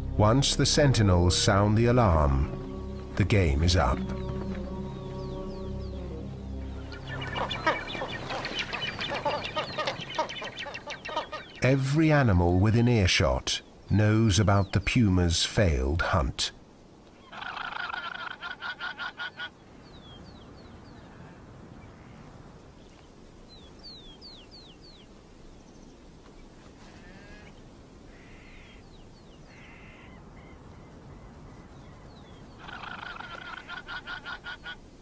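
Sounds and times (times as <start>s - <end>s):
guanaco alarm calls: 6.9s - 11.7s, 17.2s - 20.2s, 31.7s - 34.8s.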